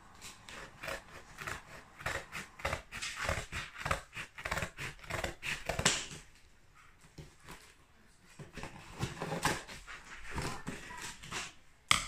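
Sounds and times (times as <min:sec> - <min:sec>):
scissors cutting tape and cardboard: 0:00.2 - 0:06.3, 0:08.6 - 0:11.6.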